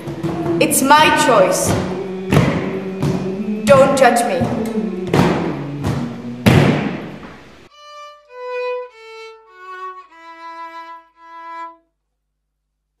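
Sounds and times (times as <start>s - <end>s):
loud percussive hit: 0.0s - 7.7s
solo violin playing slow notes: 7.6s - 11.8s.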